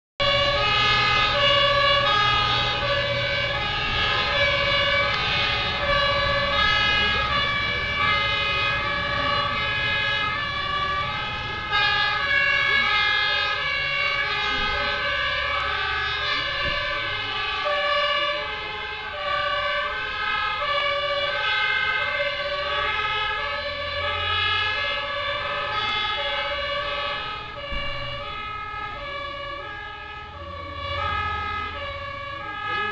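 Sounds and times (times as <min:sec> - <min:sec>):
fire engine two-tone horns: 0:00.2 - 0:32.9
truck engines rumbling: 0:00.2 - 0:32.9.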